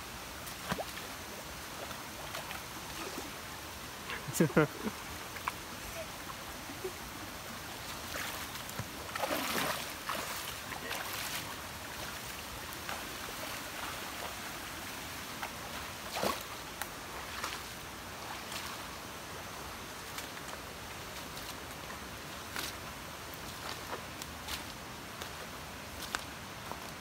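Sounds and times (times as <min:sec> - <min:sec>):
running water: 0:00.0 - 0:27.0
bare feet splashing in water: 0:00.4 - 0:01.2, 0:07.8 - 0:14.3.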